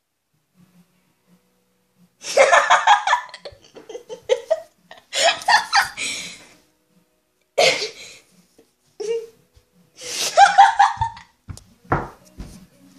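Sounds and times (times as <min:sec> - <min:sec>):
person giggling breathily: 0:03.3 - 0:06.5, 0:10.0 - 0:11.2.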